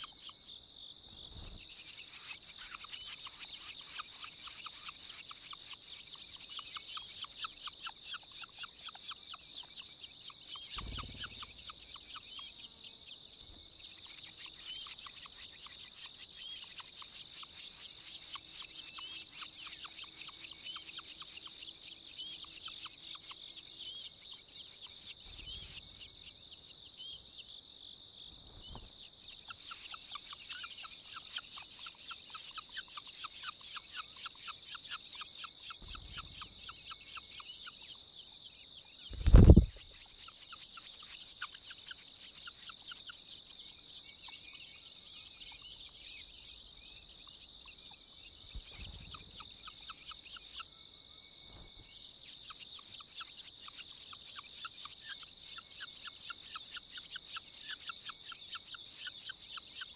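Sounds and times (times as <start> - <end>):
nestlings begging with high calls: 0.0 - 27.5, 28.4 - 50.8, 51.5 - 59.9
loud bump of bird landing: 39.1 - 39.7.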